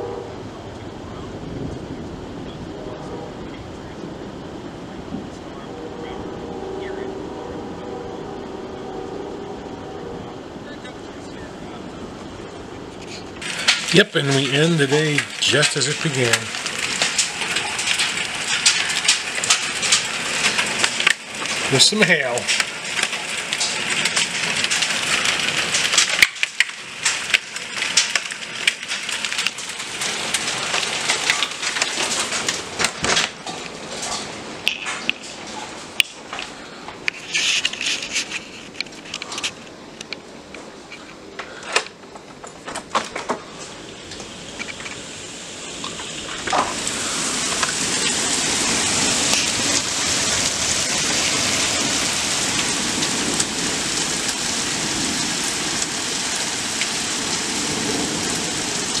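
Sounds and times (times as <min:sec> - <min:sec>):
heavy rush of hail and rain: 0:00.0 - 0:59.0
hailstones striking hard surfaces: 0:13.1 - 0:59.0.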